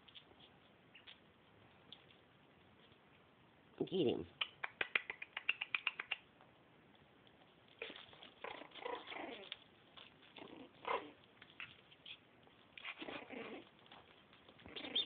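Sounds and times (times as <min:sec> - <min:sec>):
quick clicks: 0:04.4 - 0:06.3
puppy yelp: 0:07.8 - 0:09.6, 0:10.4 - 0:15.0
puppies whimpering: 0:14.6 - 0:15.0.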